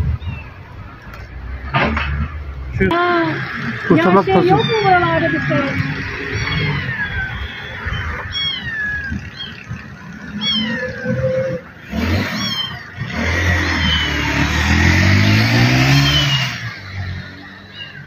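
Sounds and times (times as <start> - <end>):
passing vehicle engine: 0.0 - 18.0
kittens mewing: 3.0 - 13.2.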